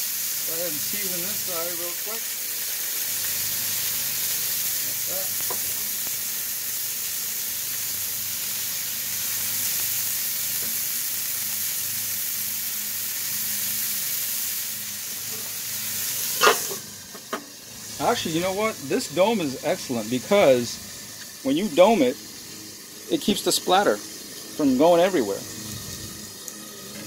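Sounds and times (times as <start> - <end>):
burger patties sizzling on griddle: 0.0 - 27.0.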